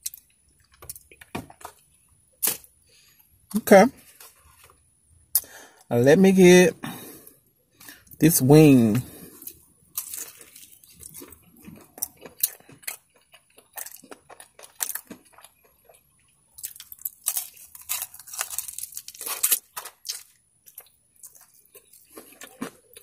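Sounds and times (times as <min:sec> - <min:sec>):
person crunching fried chicken: 0:07.8 - 0:23.0.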